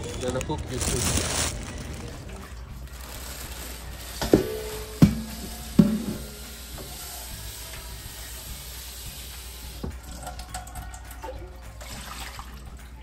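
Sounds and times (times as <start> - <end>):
tap water running into pot: 2.6 - 12.8
pot clanking against sink: 4.2 - 6.4.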